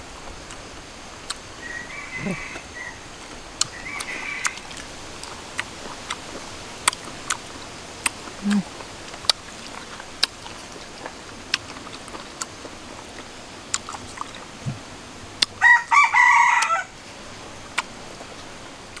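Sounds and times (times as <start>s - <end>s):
lip-smacking and chewing clicks: 0.4s - 1.5s, 3.6s - 14.8s, 17.7s - 19.0s
rooster crowing: 1.6s - 4.8s, 15.6s - 17.0s.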